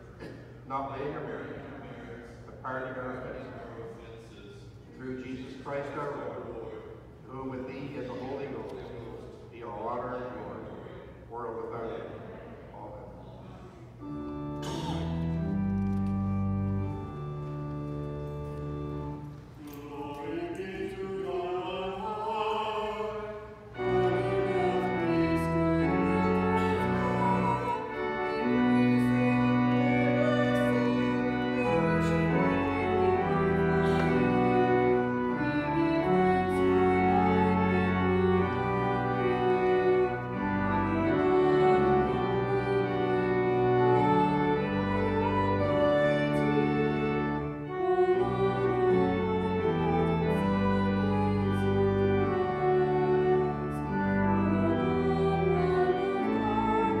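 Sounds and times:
sustained instrument chords: 14.0s - 57.0s
person singing with vibrato: 19.6s - 47.0s, 47.6s - 57.0s.

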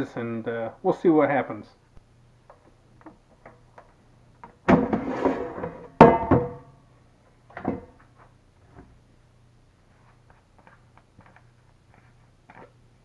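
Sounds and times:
air fryer drawer scraping: 4.7s - 5.8s
loud ringing clunk: 6.0s - 6.8s.

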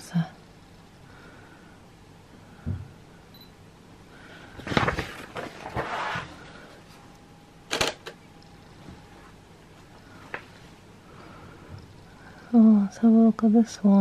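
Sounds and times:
rustling and scraping: 4.5s - 7.1s.

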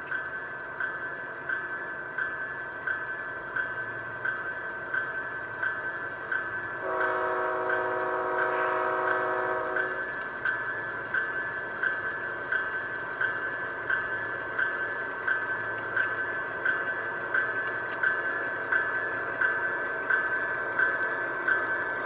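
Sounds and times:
model locomotive horn chord: 6.8s - 9.9s.

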